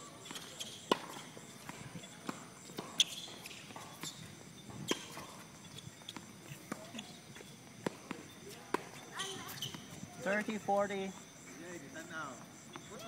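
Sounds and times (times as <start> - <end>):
ball bouncing on hard court: 0.3 - 5.4, 6.0 - 10.5
racket striking tennis ball: 0.3 - 7.1.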